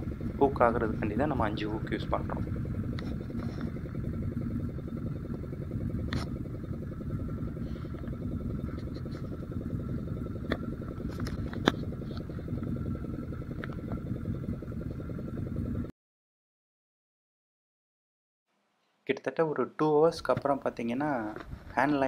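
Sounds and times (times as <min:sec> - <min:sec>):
boat engine rumbling: 0:00.0 - 0:15.9.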